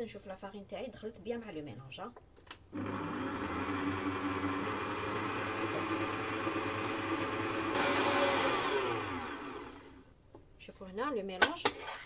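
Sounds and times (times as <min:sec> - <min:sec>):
stand mixer whisking batter: 0:02.8 - 0:09.8.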